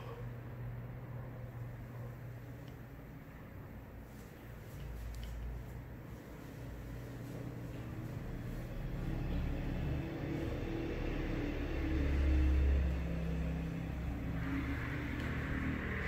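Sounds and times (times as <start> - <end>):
vehicle engine passing by: 4.8 - 16.0.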